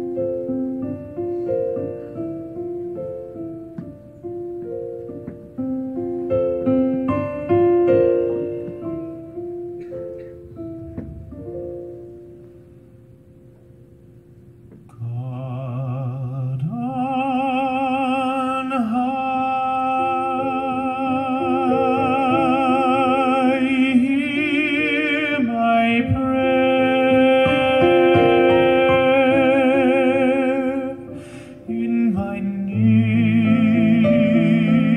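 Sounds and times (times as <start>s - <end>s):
soft piano: 0.0s - 34.9s
man singing with vibrato: 14.9s - 34.9s.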